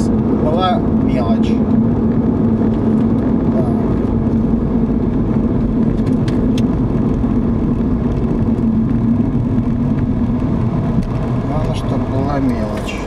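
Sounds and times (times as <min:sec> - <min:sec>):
car cabin road and engine noise: 0:00.0 - 0:13.0.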